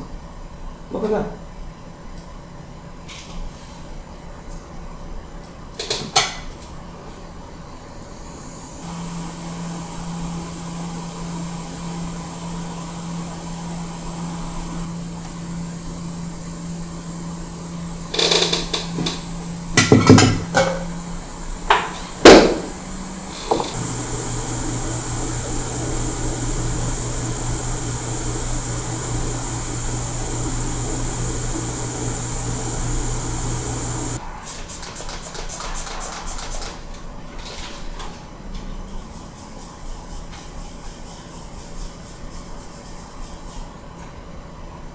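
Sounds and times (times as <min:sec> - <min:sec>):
hot air station hissing: 0:07.9 - 0:34.2
steady low hum: 0:20.8 - 0:34.2.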